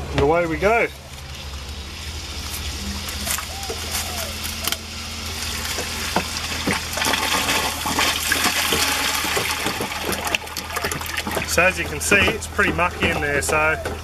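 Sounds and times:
water sputtering into bucket: 5.4 - 14.0.

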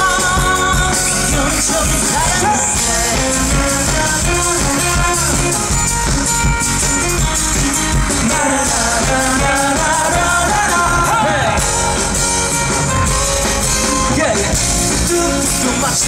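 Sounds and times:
loud rock band music: 0.0 - 16.0
pitch-bending lead melody: 0.0 - 16.0.

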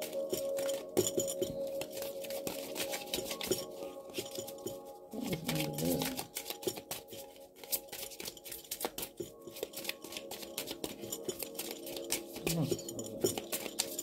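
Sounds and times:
soft background music: 0.0 - 14.0
cards being shuffled: 1.5 - 14.0.

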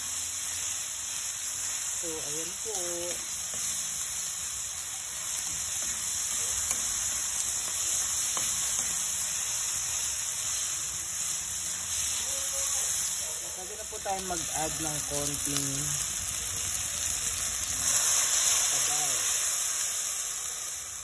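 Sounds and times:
vegetables sizzling in hot oil: 0.0 - 21.0
spatula scraping a wok: 0.2 - 14.7.

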